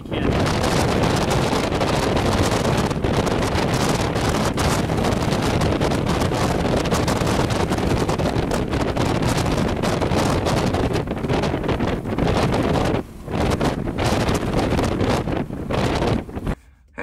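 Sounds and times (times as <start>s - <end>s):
strong wind buffeting microphone: 0.0s - 16.8s.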